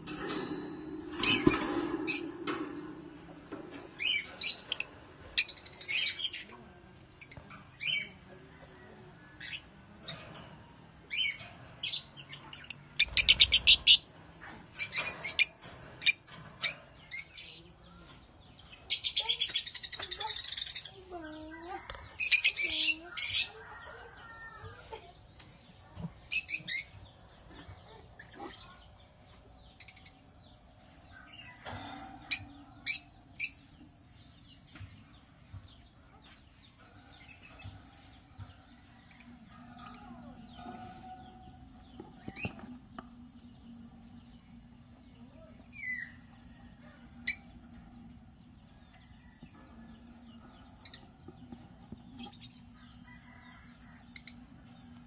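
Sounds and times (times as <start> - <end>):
lovebirds chirping: 11.1 - 14.1, 14.7 - 31.6, 32.3 - 55.0.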